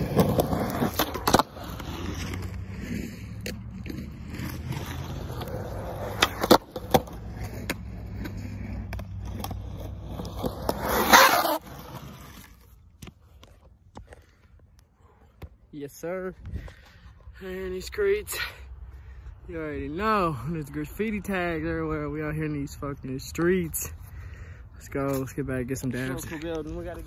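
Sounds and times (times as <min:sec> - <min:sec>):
skateboard clacks: 0:00.0 - 0:12.0
skateboard wheels rolling on asphalt: 0:00.0 - 0:27.0.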